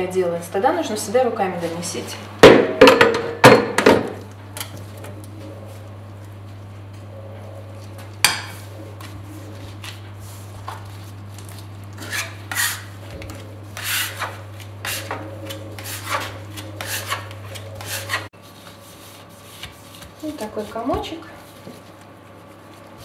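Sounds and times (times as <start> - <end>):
scraper scraping dough on countertop: 12.0 - 22.0.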